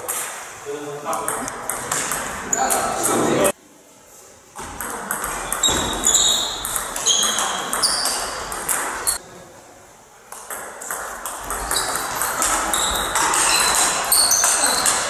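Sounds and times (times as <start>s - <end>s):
table tennis ball clicking: 4.8s - 9.2s, 10.3s - 15.0s.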